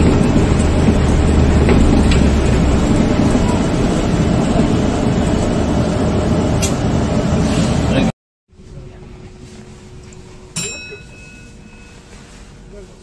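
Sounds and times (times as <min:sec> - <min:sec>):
bus running on concrete busway: 0:00.0 - 0:08.1
sharp chime: 0:10.5 - 0:12.5.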